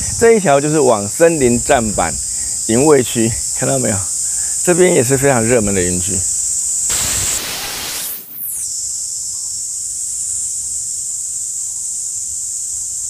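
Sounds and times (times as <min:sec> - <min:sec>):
high-pitched insect chorus: 0:00.0 - 0:13.0
hiss sweeping down in pitch: 0:06.9 - 0:08.7.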